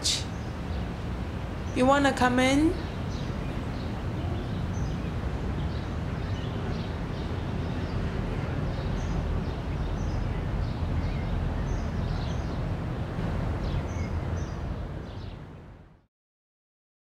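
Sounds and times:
small birds chirping: 0.0s - 12.6s.

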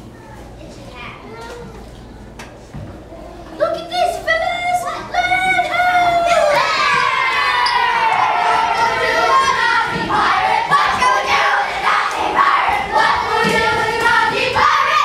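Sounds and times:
children singing and shouting: 4.1s - 15.0s.

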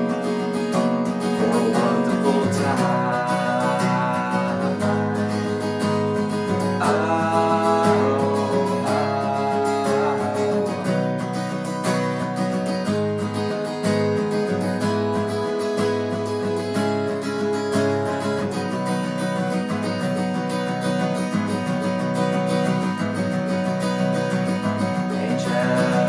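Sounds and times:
acoustic guitar strummed: 0.0s - 26.0s
man singing: 0.8s - 11.8s, 24.7s - 26.0s.

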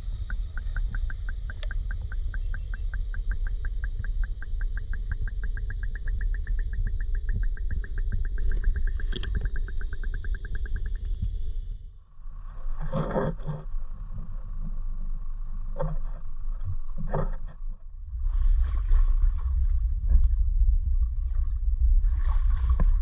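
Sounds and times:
rapid even ticking: 0.0s - 11.6s
vehicle rumbling: 0.0s - 23.0s.

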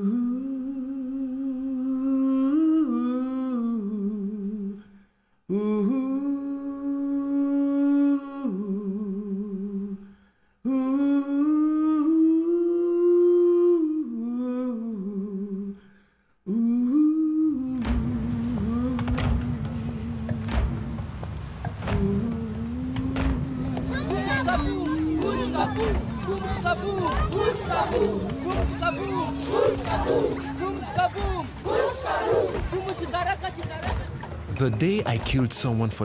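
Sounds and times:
person humming a slow melody: 0.0s - 4.8s, 5.5s - 15.8s, 16.4s - 27.2s
breath between phrases: 10.0s - 10.6s, 15.8s - 16.4s.

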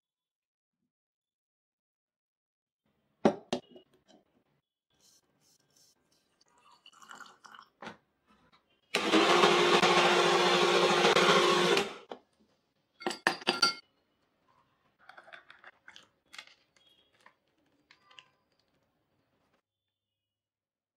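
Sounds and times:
mixer grinder motor whirring: 8.9s - 12.1s.

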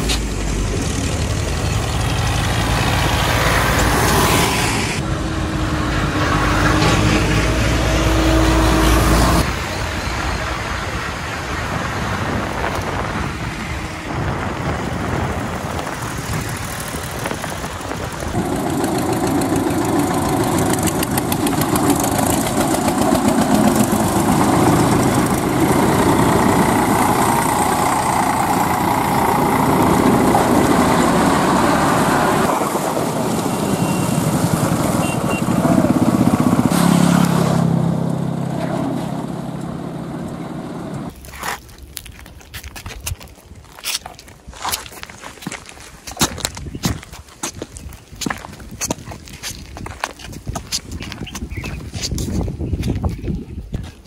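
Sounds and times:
tractor diesel engines driving past: 0.0s - 41.1s.

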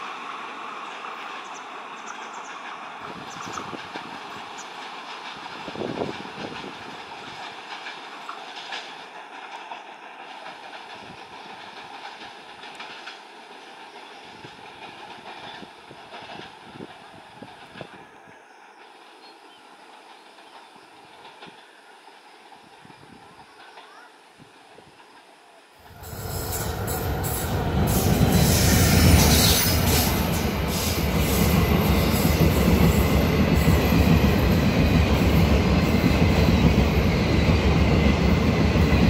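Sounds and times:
train rumble: 0.0s - 39.0s
train wheels clattering over rail joints: 2.3s - 18.0s.

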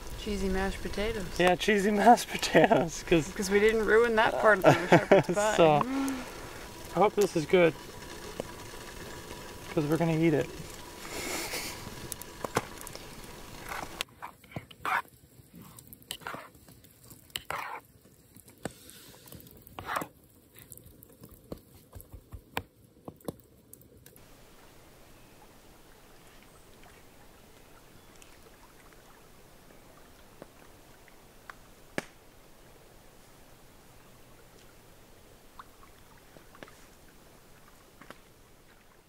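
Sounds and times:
steady faint hiss: 0.0s - 14.1s, 23.7s - 39.0s.

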